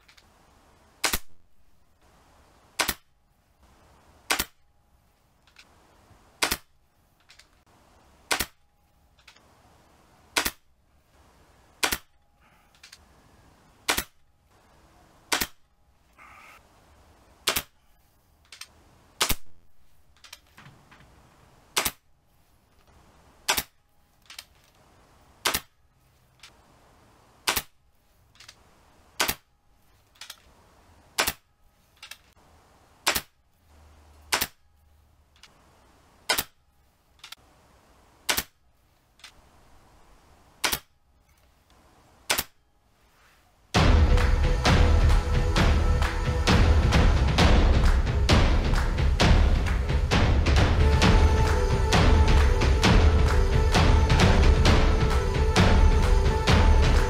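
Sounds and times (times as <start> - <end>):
air rifle shots cracking: 1.0 - 1.4, 2.8 - 3.1, 4.2 - 4.6, 6.4 - 6.7, 8.2 - 8.6, 10.3 - 10.7, 11.8 - 12.2, 15.3 - 15.6.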